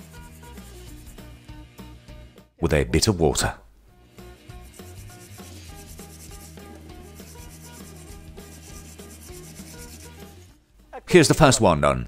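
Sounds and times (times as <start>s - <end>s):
scourer scraping a shell: 4.4s - 10.5s.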